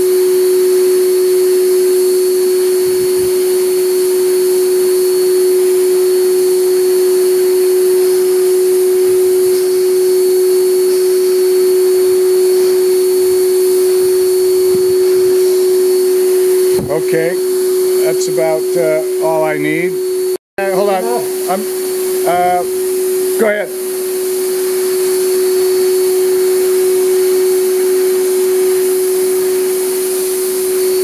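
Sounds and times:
air supply whine: 0:00.0 - 0:31.0
spray gun hissing: 0:20.8 - 0:23.2.

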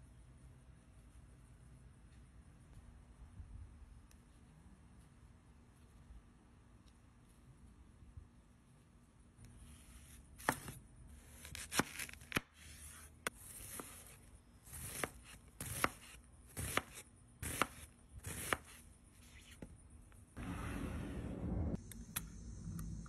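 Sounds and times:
knife cutting onion: 0:09.8 - 0:19.9.

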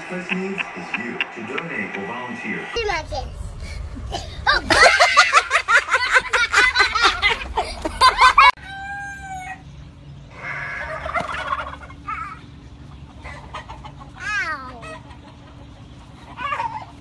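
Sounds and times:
hens clucking: 0:00.0 - 0:02.7, 0:10.3 - 0:17.0
roosters crowing: 0:10.3 - 0:12.1.

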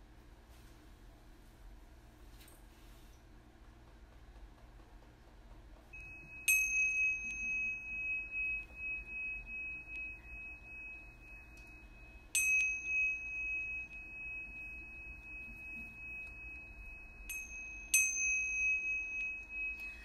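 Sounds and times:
meditation chime ringing: 0:05.9 - 0:20.0.

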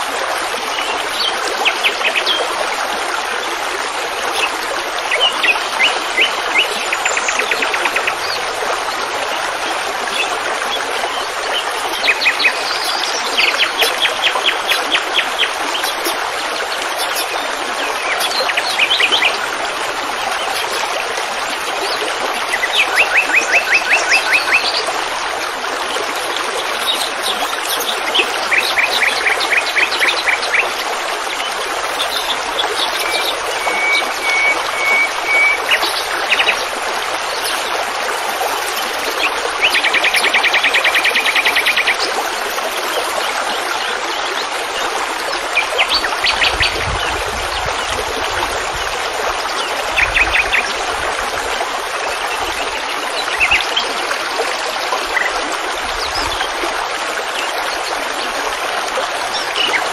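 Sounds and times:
running water rushing: 0:00.0 - 0:59.9
songbirds trilling: 0:04.1 - 0:08.5, 0:09.6 - 0:44.5.

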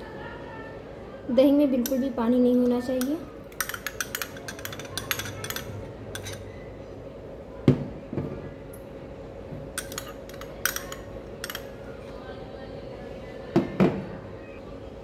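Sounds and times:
faint hum: 0:00.0 - 0:15.0
spoon clinking steel bowl: 0:02.6 - 0:06.5, 0:09.8 - 0:11.6.

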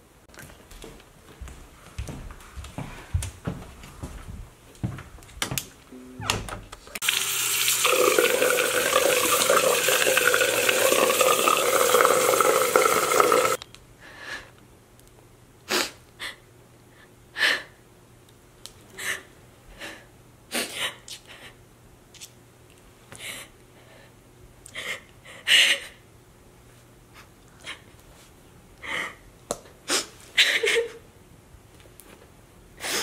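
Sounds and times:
footsteps: 0:00.3 - 0:05.6
faucet running hard: 0:07.0 - 0:13.6.

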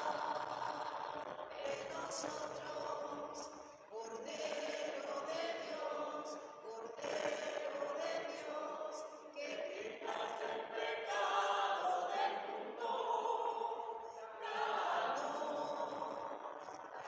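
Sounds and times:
group singing a hymn: 0:00.0 - 0:17.0.

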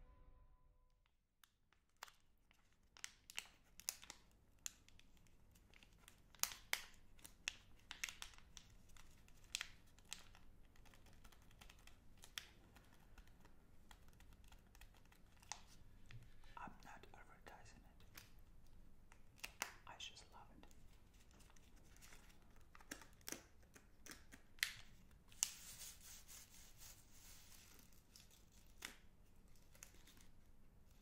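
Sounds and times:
wrapper crinkling: 0:01.8 - 0:15.8, 0:21.0 - 0:30.5.

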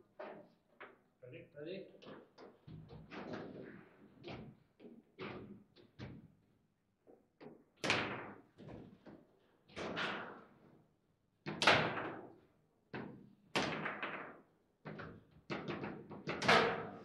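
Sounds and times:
foosball knocks and clacks: 0:13.0 - 0:17.0.

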